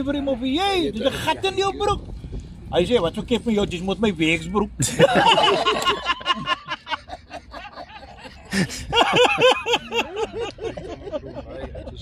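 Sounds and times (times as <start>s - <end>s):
group of people laughing: 4.8s - 12.0s.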